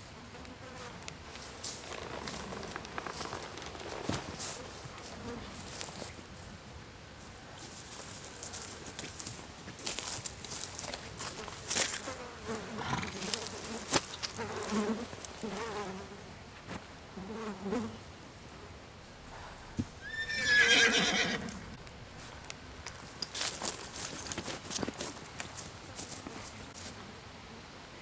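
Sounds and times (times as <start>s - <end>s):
hooves clopping: 1.3s - 6.2s, 19.1s - 26.7s
horse whinnying: 19.9s - 21.8s.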